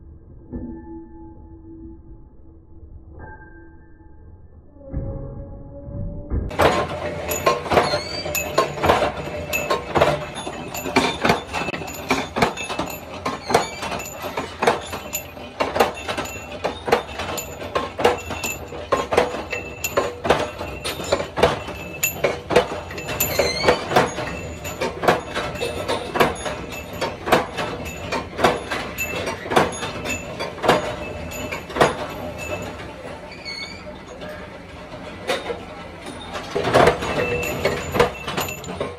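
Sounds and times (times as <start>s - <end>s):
steady machine hum: 6.0s - 38.9s
power press metallic clank: 6.5s - 32.7s.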